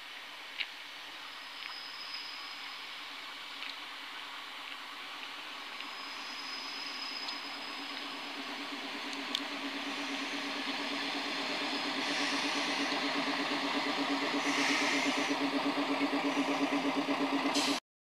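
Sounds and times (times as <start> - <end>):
diesel engine throbbing: 6.1 - 17.8.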